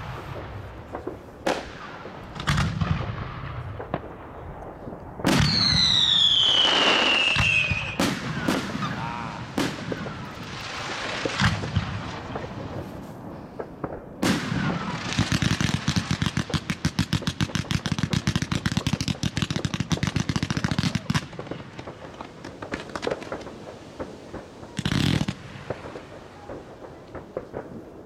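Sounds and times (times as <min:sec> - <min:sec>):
firework bang: 0:00.0 - 0:16.7
firework pops and crackling: 0:00.0 - 0:28.0
rapid volley of firework shots: 0:00.0 - 0:28.0.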